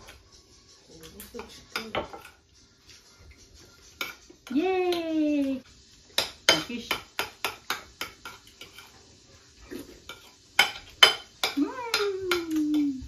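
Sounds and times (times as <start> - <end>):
cutlery clinking on plates: 1.0 - 4.6, 6.1 - 9.0, 9.7 - 13.0.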